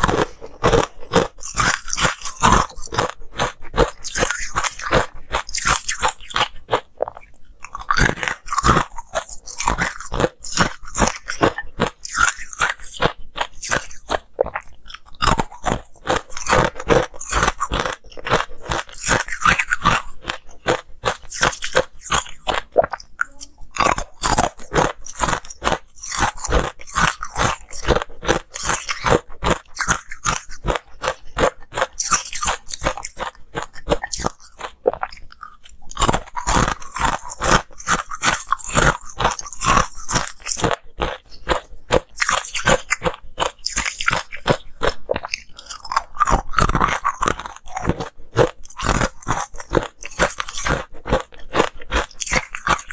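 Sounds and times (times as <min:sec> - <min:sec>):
ice cubes crunching in mouth: 0:00.0 - 0:52.9.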